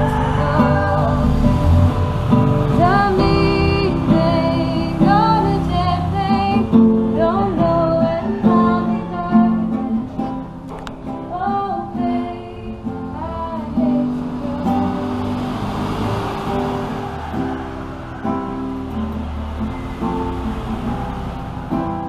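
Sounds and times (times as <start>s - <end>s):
woman singing: 0.0s - 1.8s, 2.7s - 10.4s, 11.1s - 15.4s
classical guitar strumming: 0.0s - 22.0s.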